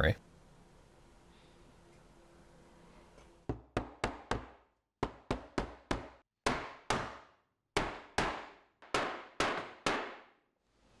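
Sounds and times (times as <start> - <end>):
hammer knocking on wood: 3.5 - 7.2, 7.8 - 10.3.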